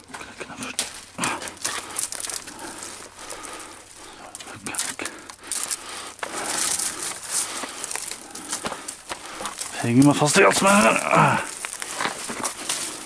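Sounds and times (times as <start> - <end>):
clothing rustling on rock: 0.0 - 13.0
stones and gravel shifting: 0.0 - 13.0.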